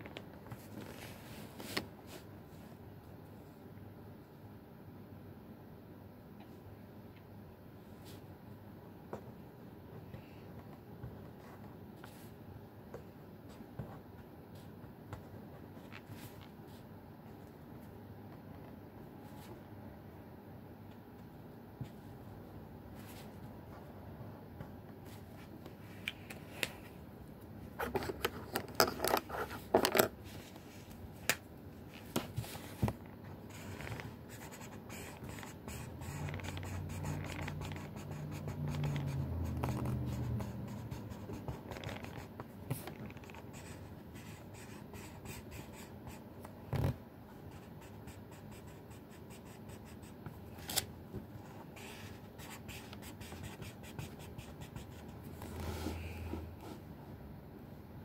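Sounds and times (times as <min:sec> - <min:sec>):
marker scratching on paper: 0:33.5 - 0:46.2, 0:47.5 - 0:50.2, 0:51.8 - 0:56.0.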